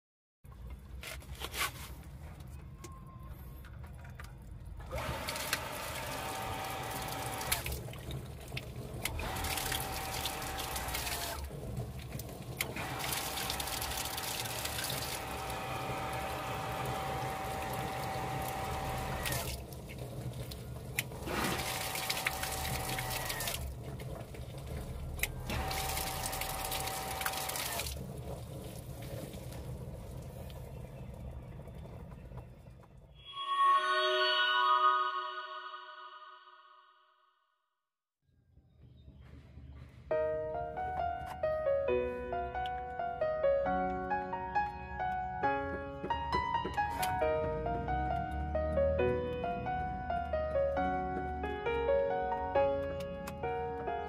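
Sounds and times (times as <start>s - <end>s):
water pump whine: 4.9s - 30.8s
water rushing through pipes: 4.9s - 31.8s.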